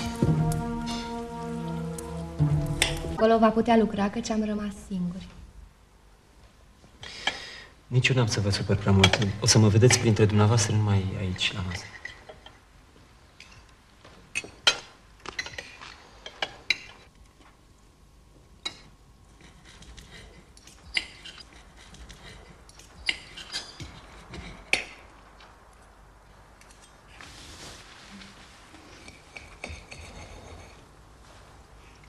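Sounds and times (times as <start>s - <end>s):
cutlery clinking on plates: 8.9s - 10.1s, 14.3s - 17.1s.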